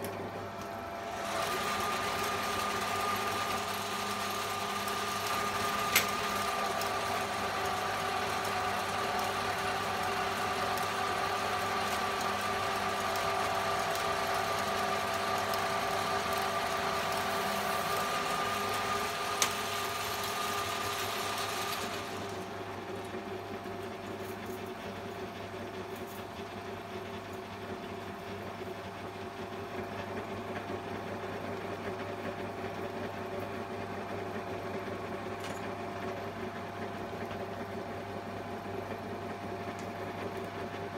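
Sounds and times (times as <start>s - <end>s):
lathe whining and hissing: 0.1s - 23.6s.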